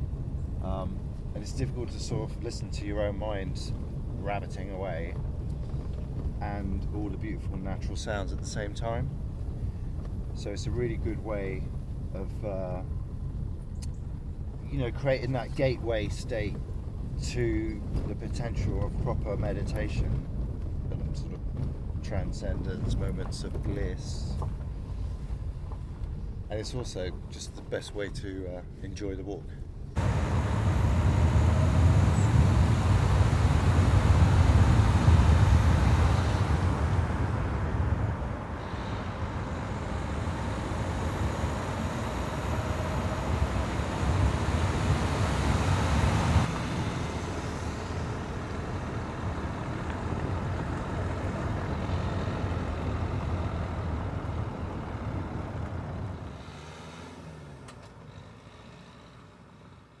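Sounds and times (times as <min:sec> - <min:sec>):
car engine and tyre rumble: 0:00.0 - 1:00.0.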